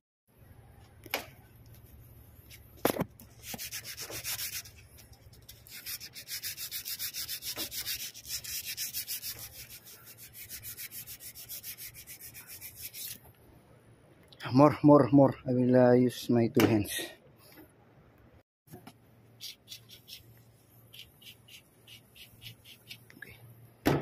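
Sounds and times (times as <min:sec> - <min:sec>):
abrasive paper rasping on copper pipe: 0:03.3 - 0:13.2, 0:19.4 - 0:23.1.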